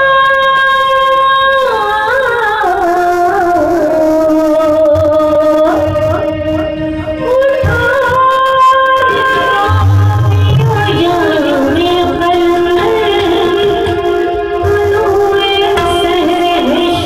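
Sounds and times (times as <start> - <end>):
woman singing into a microphone: 0.0 - 17.0
tabla strokes: 10.0 - 17.0.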